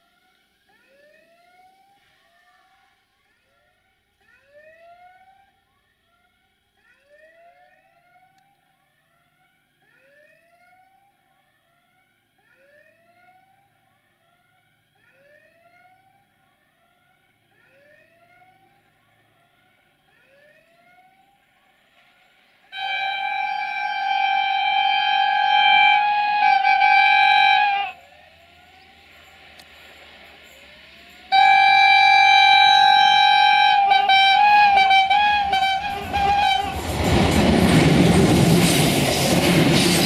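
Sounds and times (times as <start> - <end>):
diesel locomotive: 20.8 - 40.0
locomotive horn: 22.7 - 28.1, 31.3 - 37.3
level crossing warning whoop: 22.8 - 28.7, 31.3 - 37.0.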